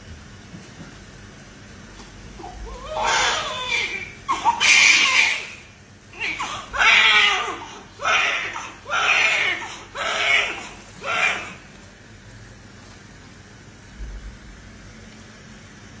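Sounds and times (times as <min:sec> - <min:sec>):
low room noise: 0:00.0 - 0:16.0
newborn baby crying: 0:02.4 - 0:11.6.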